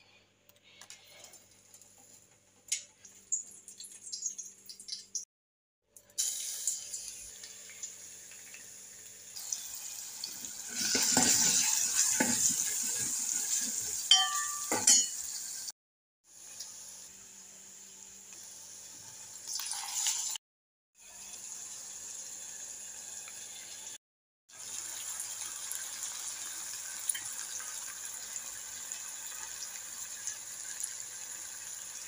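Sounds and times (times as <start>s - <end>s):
oil sizzling in a pot: 6.0s - 20.4s, 21.0s - 32.0s
ladle clinking against pot: 14.1s - 15.2s.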